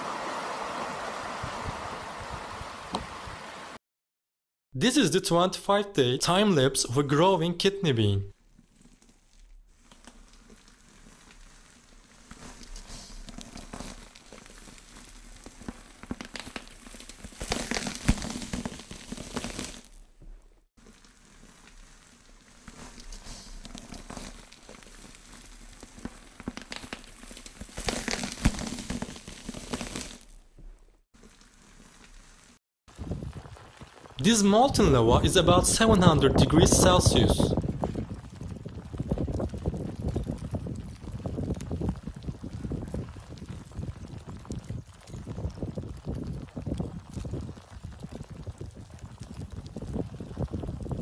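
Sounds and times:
soft crackling and rustling: 0:08.3 - 0:35.4, 0:36.0 - 0:51.0.

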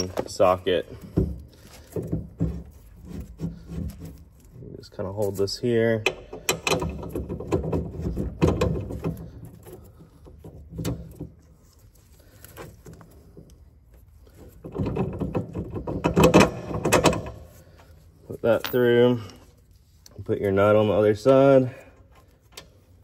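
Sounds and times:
metal bolt clicking and scraping: 0:05.4 - 0:11.5, 0:14.4 - 0:17.6, 0:18.4 - 0:20.1.

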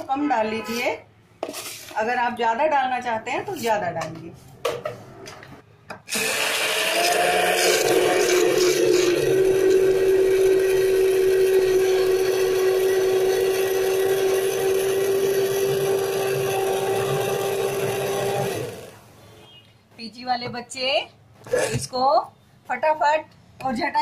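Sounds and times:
electric hand blender running: 0:06.1 - 0:19.0.

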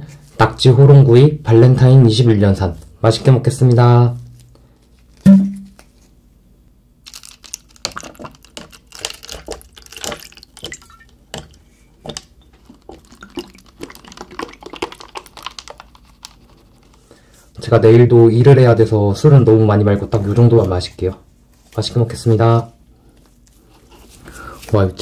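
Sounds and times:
liquid pouring into a glass: 0:07.7 - 0:16.0.

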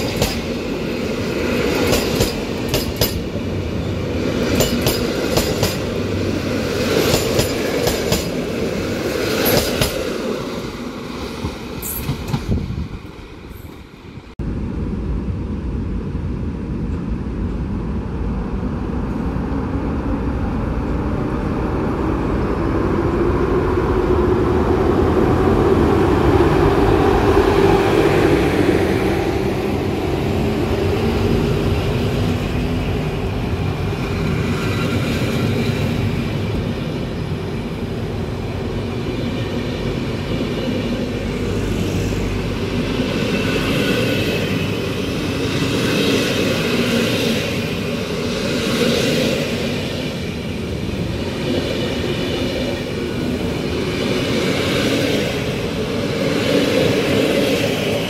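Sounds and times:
train wheels clicking over rail joints: 0:00.0 - 0:00.6, 0:01.6 - 0:03.3, 0:04.4 - 0:06.0, 0:06.8 - 0:08.5, 0:09.1 - 0:10.1
train rumble: 0:00.0 - 0:58.0.

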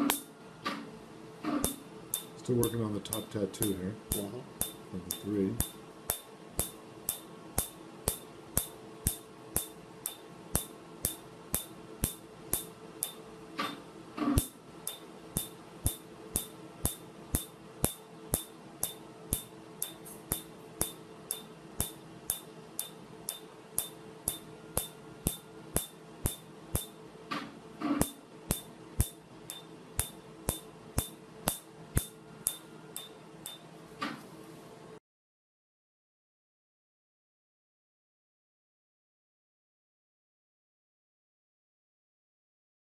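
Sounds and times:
steady low hum: 0:00.0 - 0:35.0
laser pulse snaps: 0:01.6 - 0:13.2, 0:14.4 - 0:27.0, 0:28.0 - 0:33.6.

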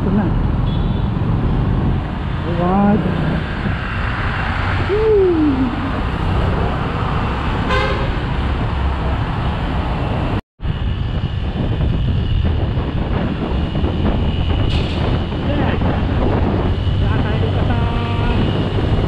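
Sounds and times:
road rumble: 0:00.0 - 0:19.0
short vehicle horn toot: 0:07.7 - 0:08.2.

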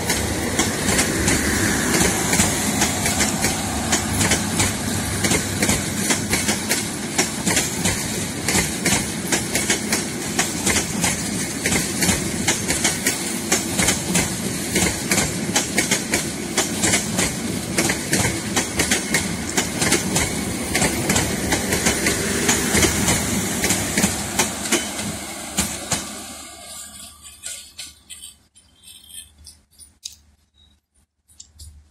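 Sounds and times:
train wheels clattering over joints: 0:00.0 - 0:26.2
train rumble: 0:00.0 - 0:29.3.

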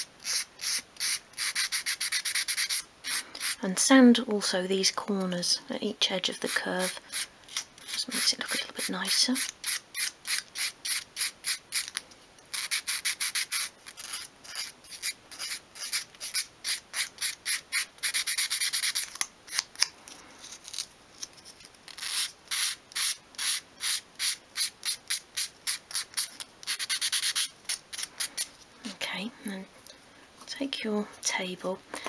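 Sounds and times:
sandpaper scratching on wood: 0:00.2 - 0:03.6, 0:22.0 - 0:28.5.

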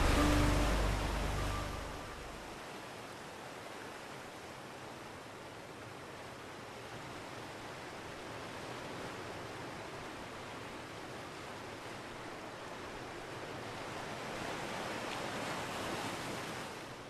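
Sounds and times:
sea waves rushing: 0:00.0 - 0:03.5, 0:11.7 - 0:17.0.

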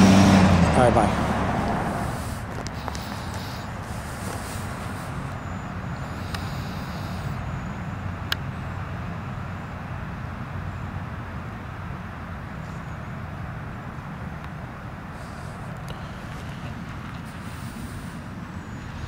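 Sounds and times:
steady low rumble: 0:00.0 - 0:12.6.

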